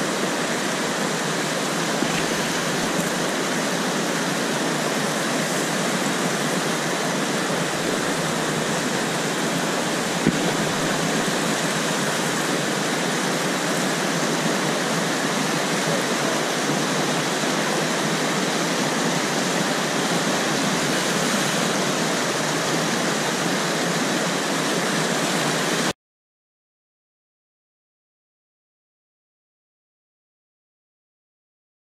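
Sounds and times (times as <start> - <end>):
whitewater rushing: 0.0 - 25.9
sharp knock: 10.2 - 11.0.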